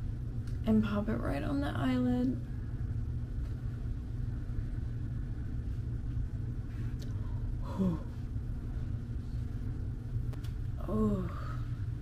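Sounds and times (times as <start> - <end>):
low room rumble: 0.0 - 12.0.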